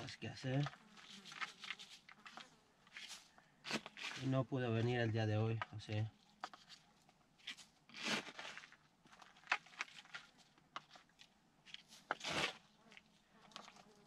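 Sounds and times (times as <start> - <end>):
scoop scraping gravelly soil: 0.1 - 4.4, 7.4 - 10.3, 11.7 - 13.9.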